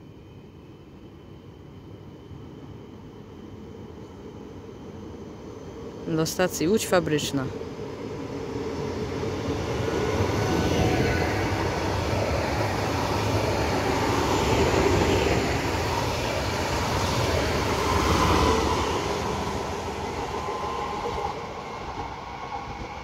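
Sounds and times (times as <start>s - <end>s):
train wheels rumbling on rail: 6.8s - 23.0s.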